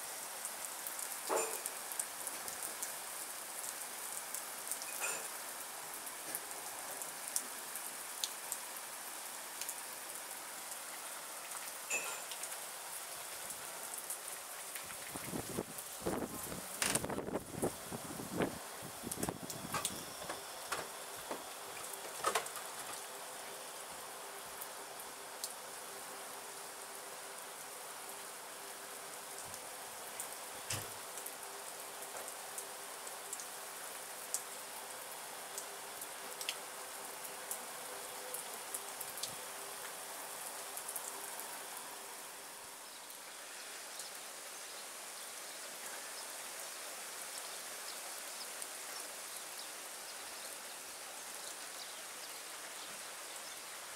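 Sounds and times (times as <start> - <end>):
steady rain hiss: 0.0 - 53.9
raindrops ticking: 11.0 - 17.7, 18.4 - 23.1.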